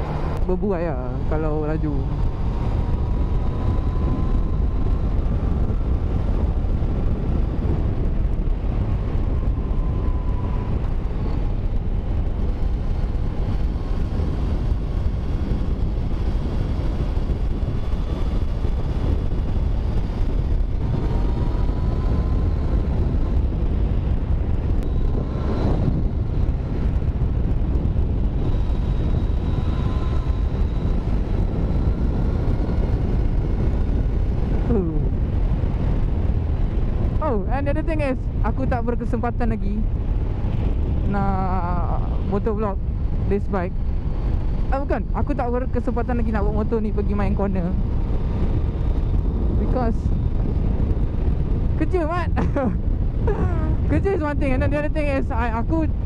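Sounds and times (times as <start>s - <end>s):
motorcycle engine: 0.0s - 38.4s
wind rush on microphone: 0.0s - 56.0s.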